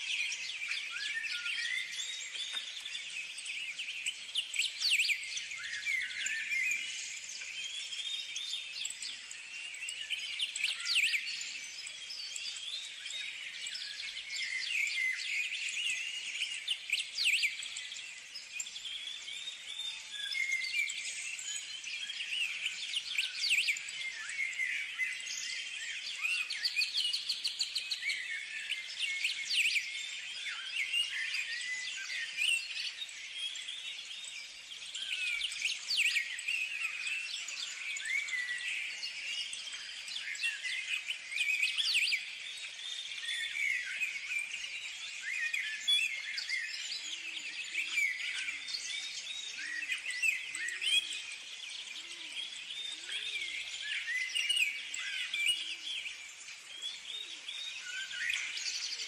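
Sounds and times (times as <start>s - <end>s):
birds chirping and singing: 0.0s - 59.0s.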